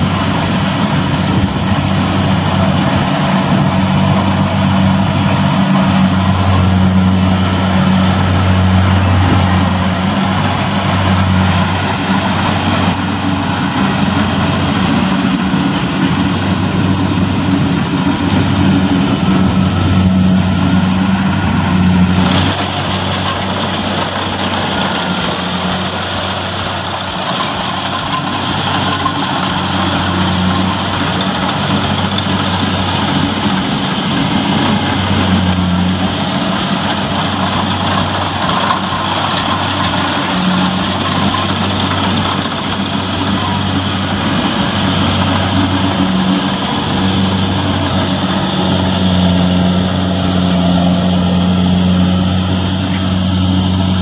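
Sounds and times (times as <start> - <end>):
combine harvester diesel engine: 0.0 - 54.0.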